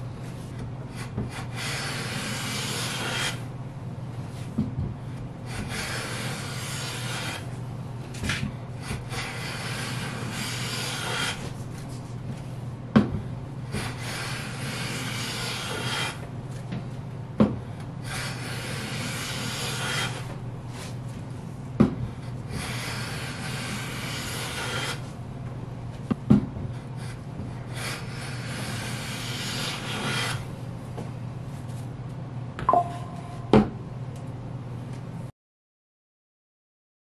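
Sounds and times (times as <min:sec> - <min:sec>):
hand plane hissing on wood: 0:00.9 - 0:03.5, 0:05.5 - 0:07.5, 0:08.8 - 0:11.6, 0:13.7 - 0:16.2, 0:18.0 - 0:21.0, 0:22.5 - 0:25.1, 0:27.0 - 0:30.5.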